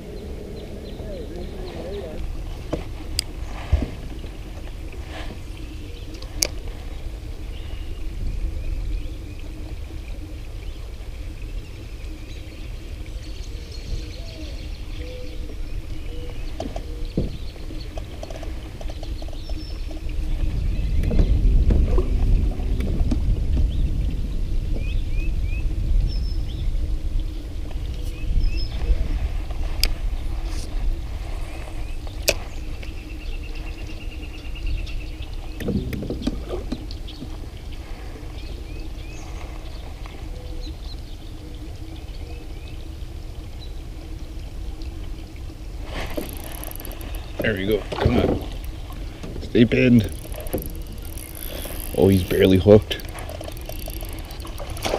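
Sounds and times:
faint steady hum: 0:00.0 - 0:54.9
wind rumbling on microphone: 0:00.0 - 0:54.9
fishing reel rattling clicks: 0:46.2 - 0:47.3, 0:49.9 - 0:54.9.

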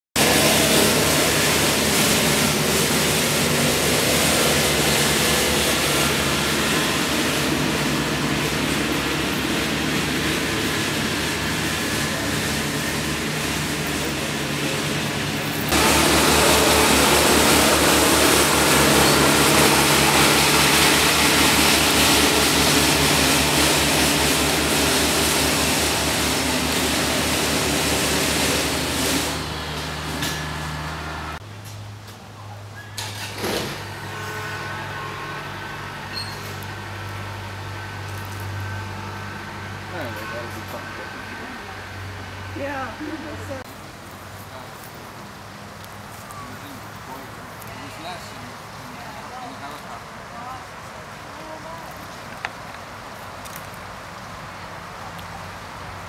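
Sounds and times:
motor engine running: 0:00.2 - 0:31.4.

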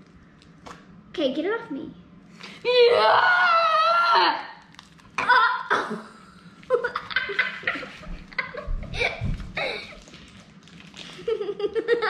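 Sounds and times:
person laughing: 0:06.7 - 0:10.0, 0:11.2 - 0:12.0
children giggling: 0:06.7 - 0:10.1, 0:11.2 - 0:12.0.

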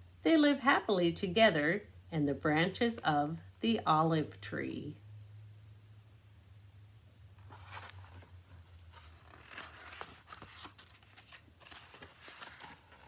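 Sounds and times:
book pages turning: 0:07.4 - 0:13.0.

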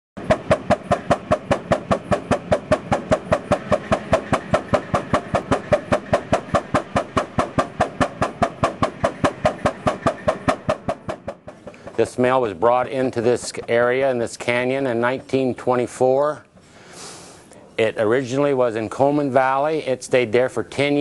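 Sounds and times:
sawmill engine running: 0:00.2 - 0:16.9.

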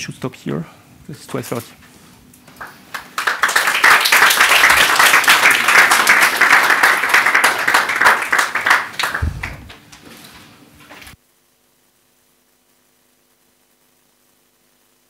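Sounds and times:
audience applauding: 0:02.5 - 0:10.2.

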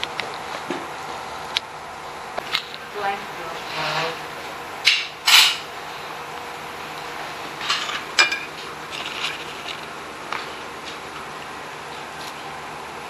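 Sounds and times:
room noise: 0:00.0 - 0:13.0
chopsticks clinking on ceramic plate: 0:07.8 - 0:08.6
handling rustles: 0:07.8 - 0:11.0.

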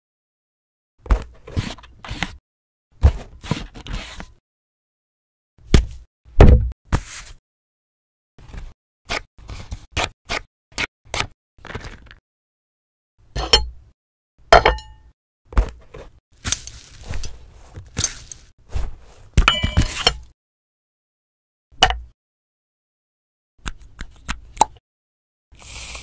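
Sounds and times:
crinkly rustling: 0:16.4 - 0:19.2.

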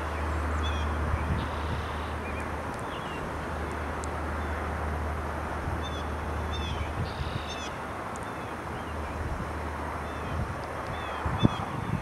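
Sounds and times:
short high bird calls: 0:05.8 - 0:09.0.

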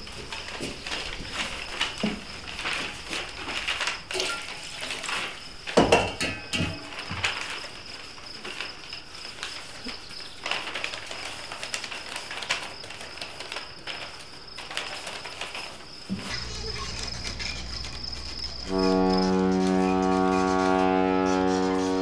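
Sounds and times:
newspaper rustling: 0:00.0 - 0:05.9, 0:06.8 - 0:22.0
low musical drone: 0:16.3 - 0:22.0.

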